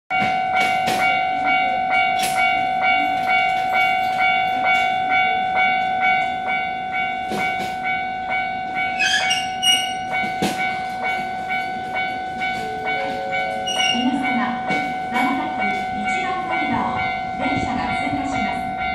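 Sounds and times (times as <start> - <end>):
level crossing warning bell: 0.1 - 18.9.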